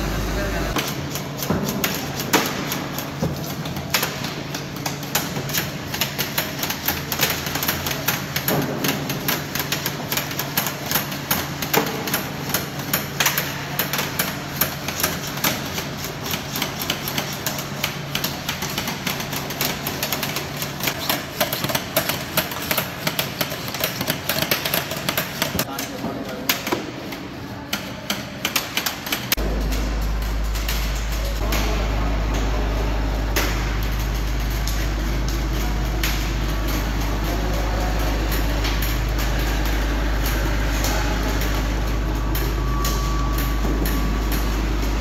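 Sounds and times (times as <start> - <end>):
low steady hum: 0.0 - 0.8, 29.3 - 45.0.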